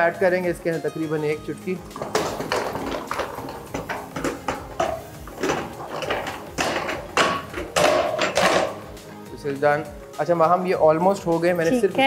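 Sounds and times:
food sizzling in oil: 0:01.4 - 0:09.3
wooden spatula scraping in wok: 0:01.8 - 0:08.9.

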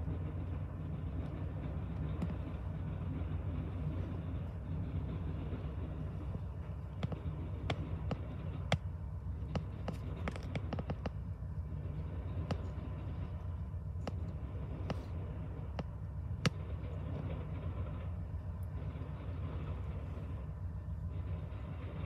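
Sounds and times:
muffled train rumble: 0:00.0 - 0:22.0
sharp train clicks: 0:00.0 - 0:22.0.

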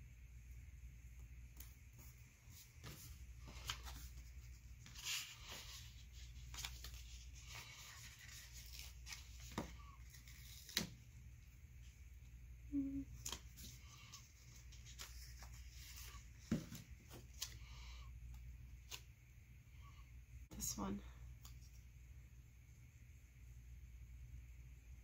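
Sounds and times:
paper pages rustling: 0:01.6 - 0:11.1, 0:13.1 - 0:17.7.

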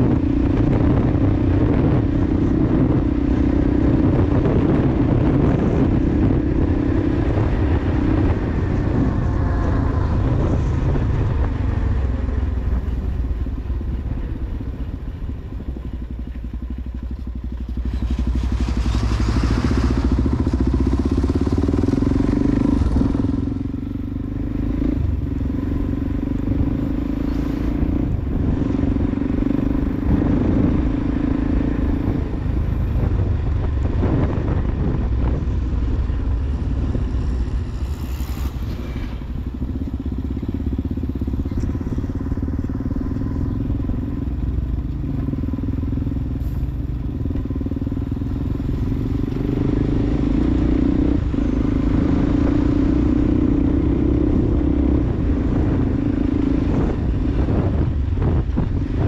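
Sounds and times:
motorcycle engine running: 0:00.0 - 0:59.0
truck passing: 0:17.6 - 0:58.8.

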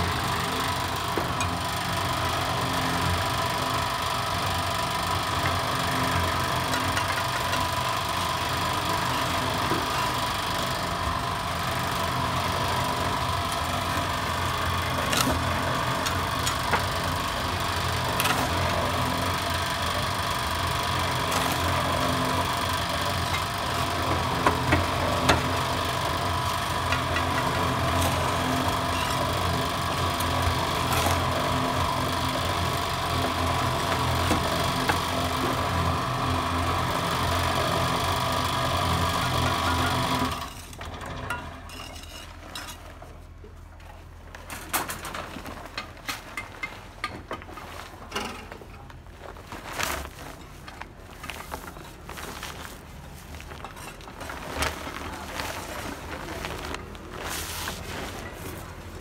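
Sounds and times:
electric mortar mixer humming: 0:00.0 - 0:41.6
shovel scraping sand and cement: 0:27.3 - 0:32.0, 0:49.8 - 0:59.0.

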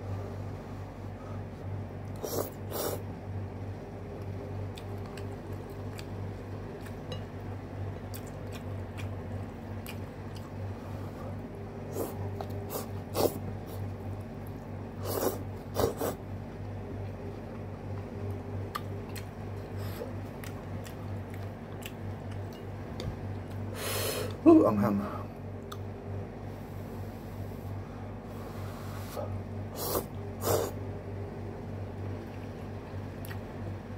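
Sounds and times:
steady low hum: 0:00.0 - 0:33.9
person chewing and slurping: 0:08.0 - 0:10.6, 0:11.8 - 0:13.9, 0:15.0 - 0:16.2.

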